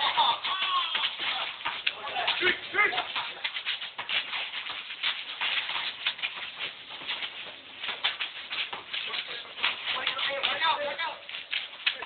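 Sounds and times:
footsteps on asphalt court: 0.0 - 12.0.

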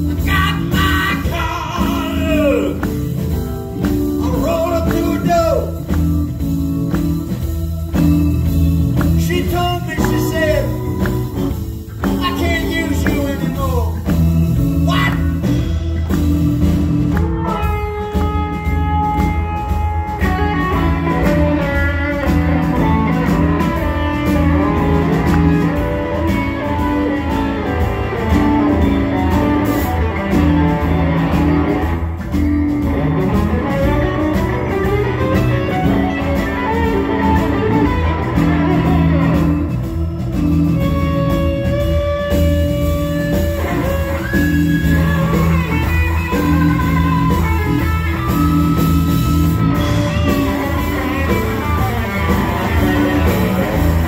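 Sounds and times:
blues band playing: 0.0 - 54.0.

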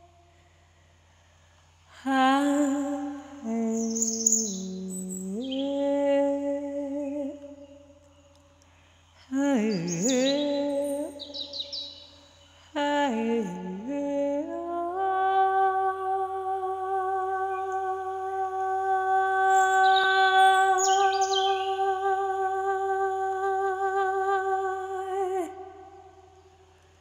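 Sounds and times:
person humming: 1.9 - 7.6, 9.3 - 11.6, 12.7 - 26.3
bird chirps: 3.7 - 5.8, 9.1 - 12.7, 19.5 - 22.1.

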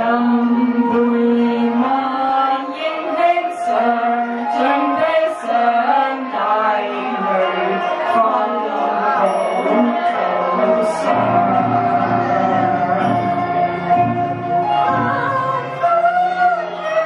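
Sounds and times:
women singing opera together: 0.0 - 17.0.

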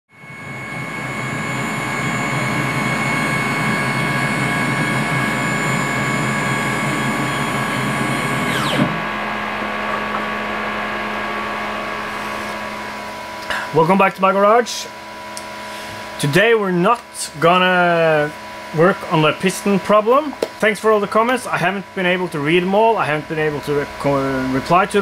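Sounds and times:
milling machine whine: 0.1 - 16.4
low hum: 0.2 - 13.8.

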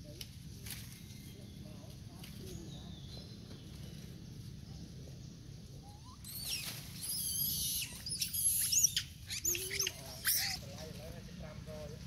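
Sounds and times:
monkeys squealing: 5.8 - 10.8.

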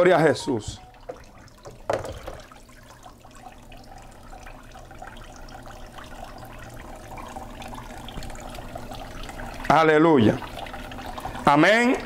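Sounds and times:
tap water running into sink: 0.2 - 12.0.

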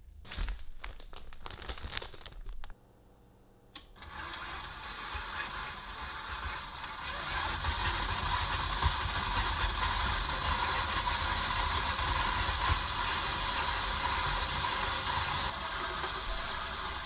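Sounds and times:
electric stand mixer running: 4.0 - 17.0.

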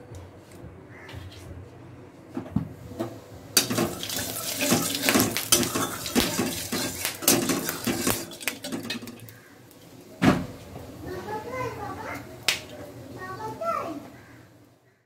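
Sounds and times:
metal spoon scraping a pan: 3.6 - 9.4
oil sizzling and spattering: 3.6 - 9.8.

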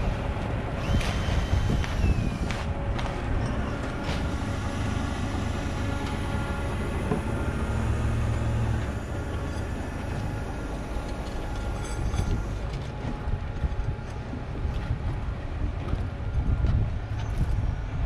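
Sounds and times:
crane engine running: 0.0 - 18.0.

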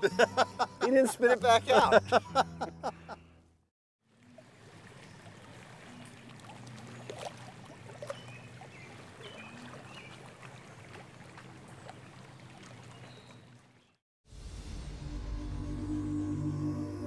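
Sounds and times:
water lapping against boat hull: 4.0 - 14.0.

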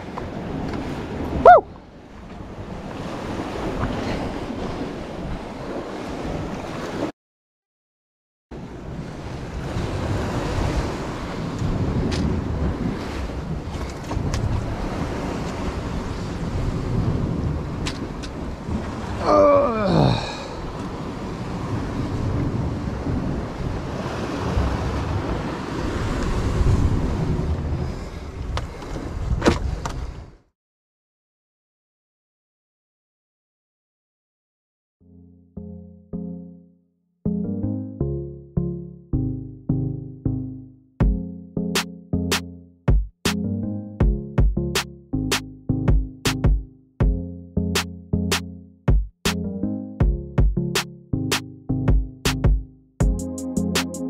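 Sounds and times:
sea surf against rocks: 0.0 - 7.1, 8.6 - 30.4
wind buffeting microphone: 8.6 - 19.2, 20.5 - 30.4.

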